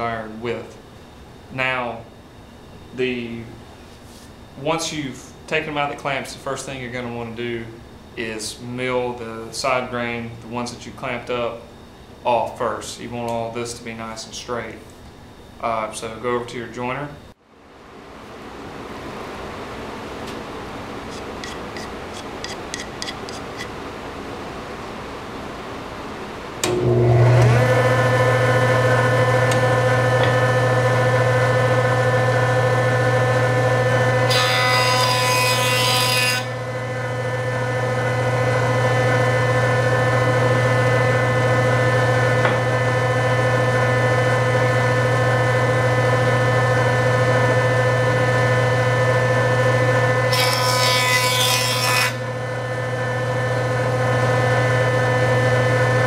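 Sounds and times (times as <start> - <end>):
jointer cutting wood: 26.6 - 56.0
jointer motor hum: 26.6 - 56.0.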